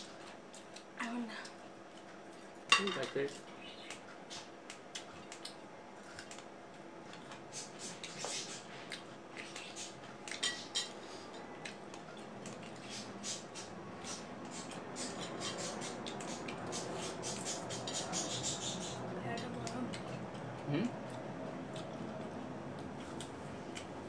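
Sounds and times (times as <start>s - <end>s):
crunchy chewing: 3.3s - 19.0s, 19.6s - 24.0s.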